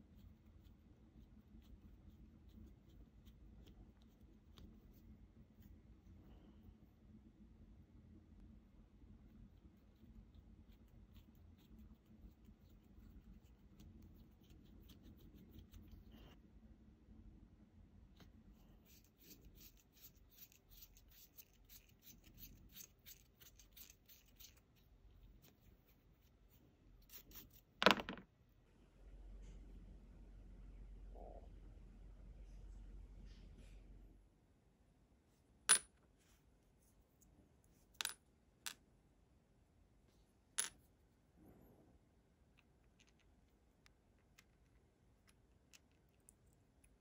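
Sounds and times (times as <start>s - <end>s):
light scratchy rubbing strokes: 18.5s - 27.8s.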